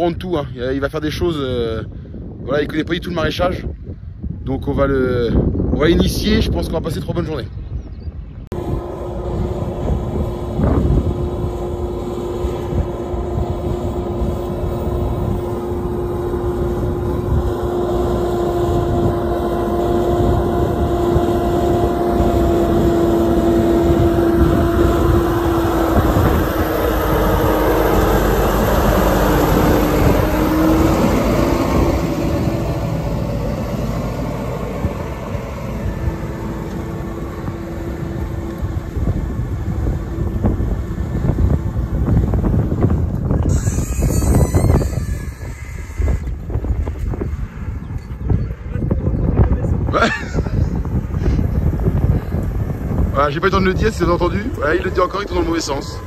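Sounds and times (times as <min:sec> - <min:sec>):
tractor engine running: 0:08.5 - 0:49.9, 0:50.6 - 0:56.0.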